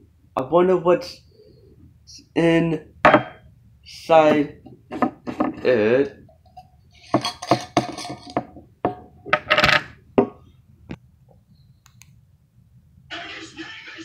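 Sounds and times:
television music: 13.1 - 14.0.

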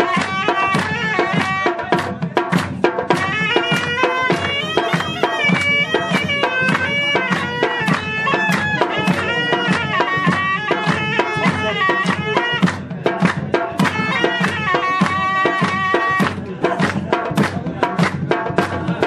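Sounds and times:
double-reed pipe melody: 0.0 - 1.9, 3.1 - 12.7, 13.8 - 16.3
fast steady beat: 0.0 - 19.0
hand claps: 0.0 - 19.0.

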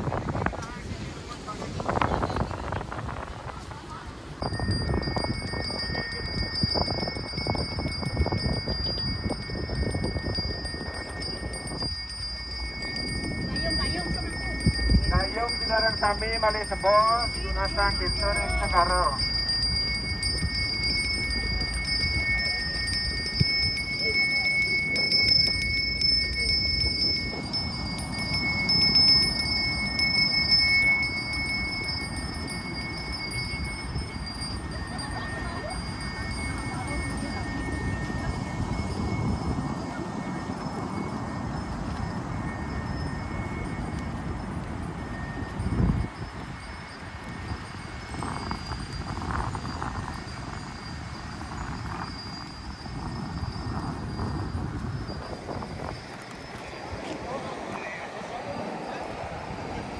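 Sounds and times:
ringing metal tones: 4.4 - 59.9.

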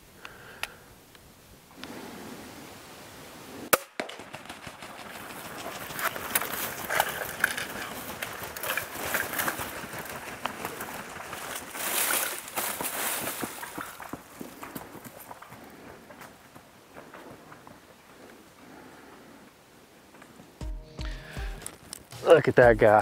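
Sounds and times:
wingbeats: 4.0 - 12.3
turkeys crunching through leaves: 4.2 - 15.9.

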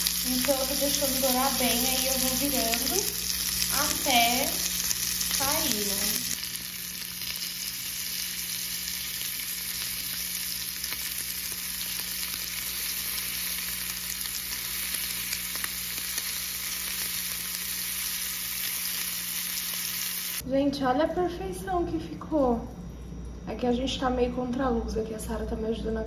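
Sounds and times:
sausages sizzling in a frying pan: 0.0 - 20.4.

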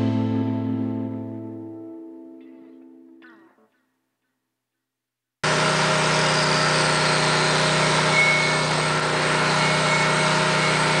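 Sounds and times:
machine humming steadily: 5.4 - 11.0.

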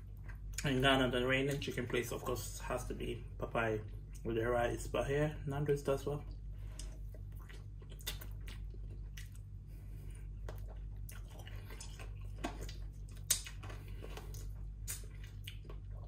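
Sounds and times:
person chewing: 0.0 - 0.8, 6.2 - 16.0
steady low hum: 0.0 - 16.0
mouth clicks and smacks: 6.7 - 9.5, 10.4 - 13.7.

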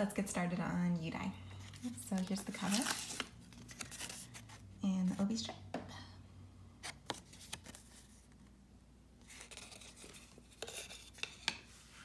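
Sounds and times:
paper rustle: 1.6 - 4.6, 6.8 - 8.3, 9.2 - 11.3.

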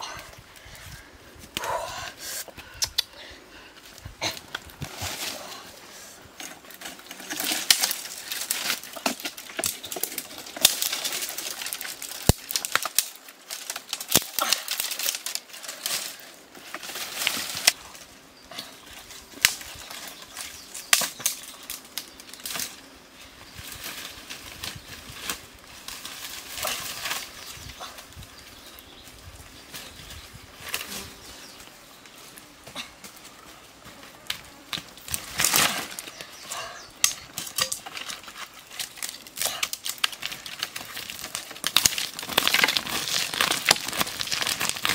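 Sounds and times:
dry brush rustling and crackling: 3.6 - 44.9
twigs snapping: 6.4 - 22.8, 34.2 - 44.9.

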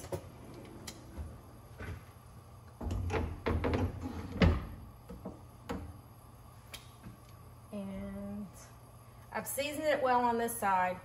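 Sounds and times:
kitchen cabinet opening and shutting: 2.8 - 4.8.

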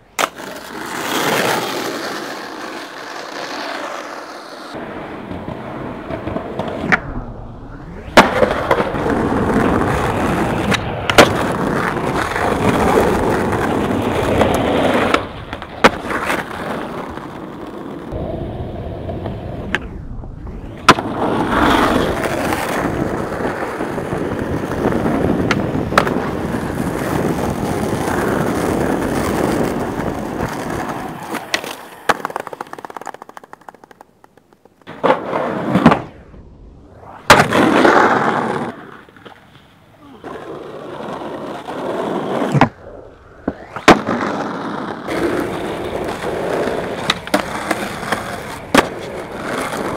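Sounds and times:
skateboard wheels rolling on concrete: 0.0 - 49.9
skateboard clacking on ground: 24.5 - 36.0, 43.4 - 49.9.

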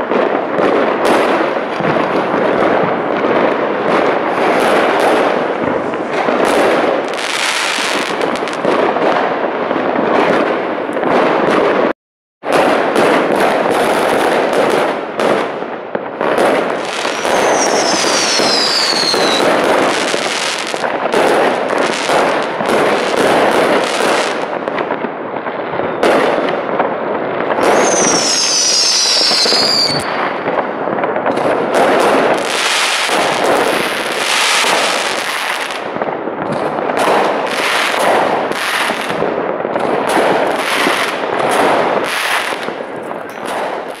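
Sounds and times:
fireworks banging and crackling: 0.0 - 44.0
whistling firework: 0.0 - 44.0.

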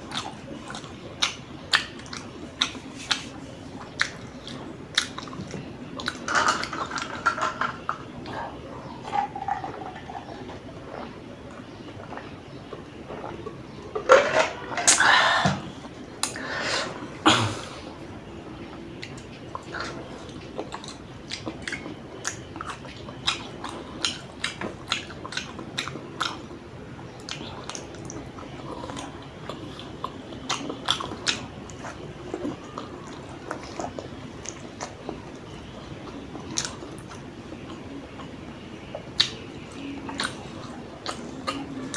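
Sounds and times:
noodles chewed and slurped: 0.0 - 15.0, 17.9 - 41.9.

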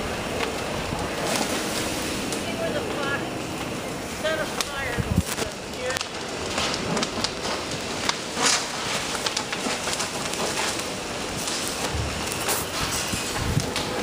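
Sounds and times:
fire crackling and snapping: 0.0 - 14.0
hoses rushing hiss: 0.0 - 14.0.

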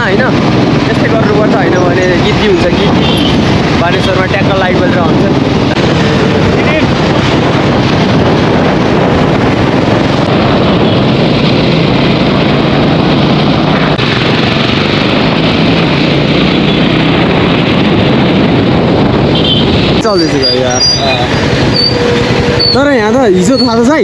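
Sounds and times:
motorcycle engine running: 0.0 - 24.0
wind on microphone: 0.0 - 24.0.

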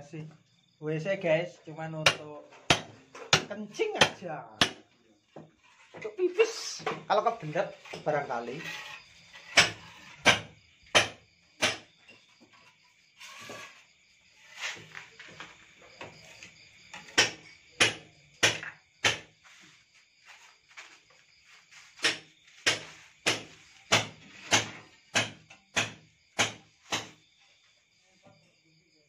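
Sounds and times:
crickets trilling: 0.0 - 29.0
hand tool knocking on brick: 2.1 - 4.9.

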